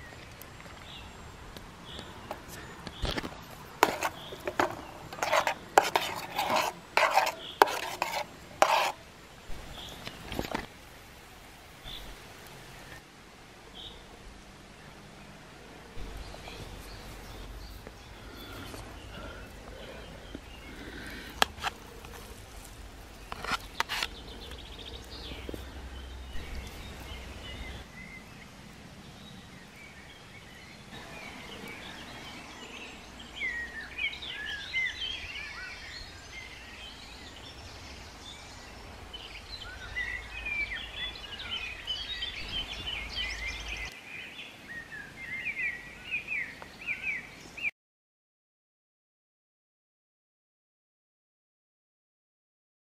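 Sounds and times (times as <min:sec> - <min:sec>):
small birds singing: 0:00.0 - 0:10.7, 0:11.6 - 0:13.0, 0:13.6 - 0:47.7
steady low rumble: 0:16.0 - 0:23.3.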